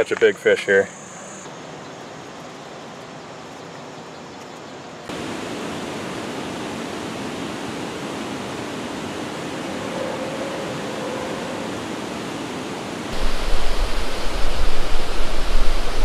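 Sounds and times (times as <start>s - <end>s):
background hiss: 0.0s - 16.0s.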